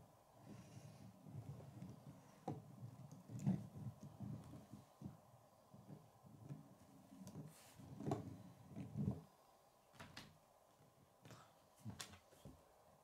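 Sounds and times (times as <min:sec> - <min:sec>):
plastic wheels rolling on wood: 0:00.7 - 0:05.2, 0:05.8 - 0:09.3.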